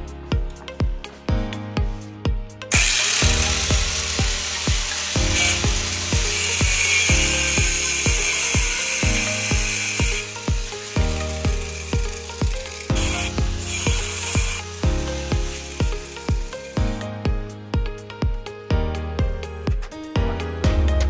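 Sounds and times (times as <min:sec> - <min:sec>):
background music with steady beat: 0:00.0 - 0:21.0
power tool running: 0:02.7 - 0:17.1.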